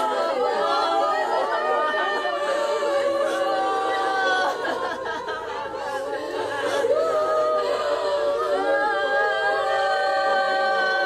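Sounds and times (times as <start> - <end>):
group singing without instruments: 0.0 - 11.0.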